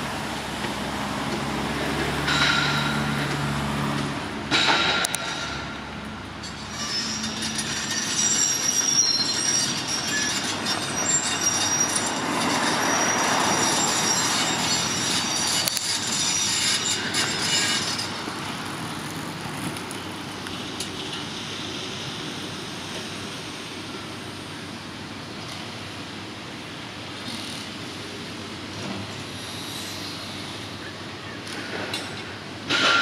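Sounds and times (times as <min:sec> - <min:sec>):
rumble of heavy machinery: 0:00.0 - 0:33.0
high metallic squealing: 0:04.6 - 0:18.5.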